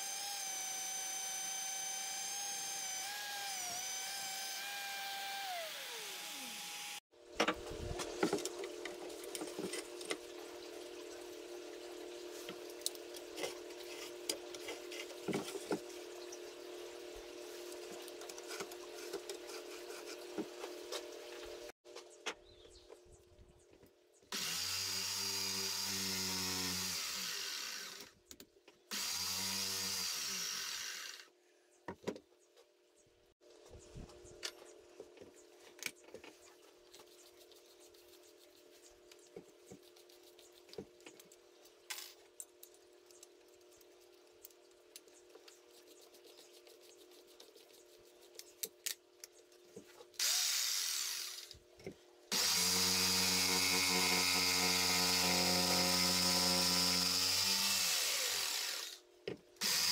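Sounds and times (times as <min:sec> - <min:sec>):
jigsaw sawing wood: 0:00.0 - 0:07.0, 0:24.3 - 0:28.1, 0:28.9 - 0:31.3, 0:50.2 - 0:51.6, 0:52.3 - 0:59.0, 0:59.6 - 0:59.9.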